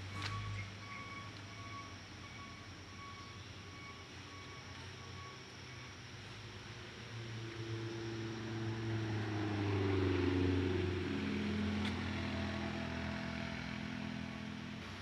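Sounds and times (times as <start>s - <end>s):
vehicle engine passing: 7.1s - 15.0s.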